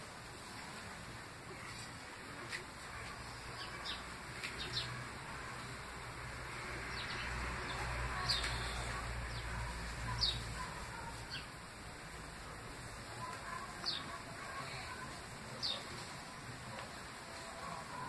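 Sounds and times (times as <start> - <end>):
steady hiss: 0.0 - 18.0
bird chirping: 6.8 - 11.6.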